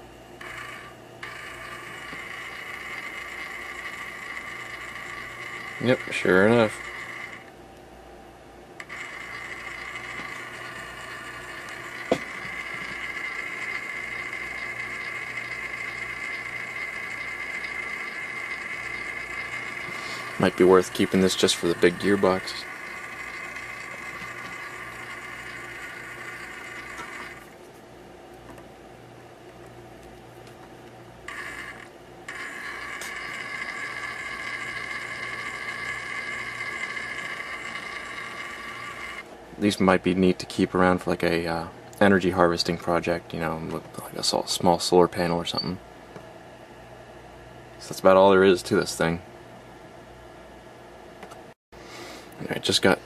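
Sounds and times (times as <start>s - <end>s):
small motor whine: 0.0s - 7.5s, 8.8s - 27.6s, 31.3s - 39.3s.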